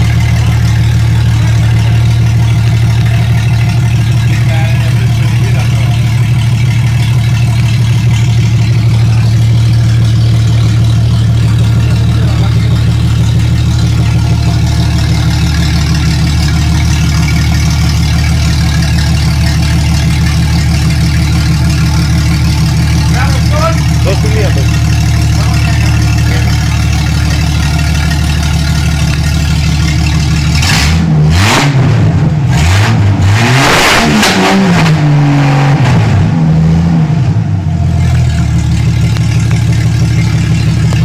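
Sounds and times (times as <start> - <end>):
car engine idling: 0.0 - 41.0.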